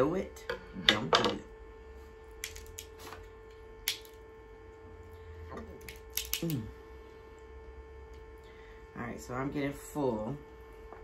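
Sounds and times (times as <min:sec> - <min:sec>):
electrical hum: 0:00.0 - 0:11.0
crab shell cracking: 0:03.8 - 0:04.2, 0:05.8 - 0:06.6.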